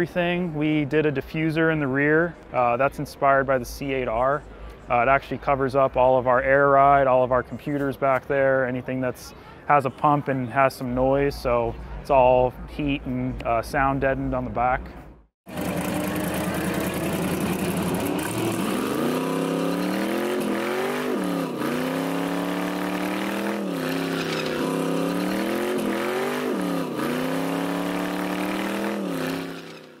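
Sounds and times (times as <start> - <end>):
car engine revving hard: 15.5 - 30.0.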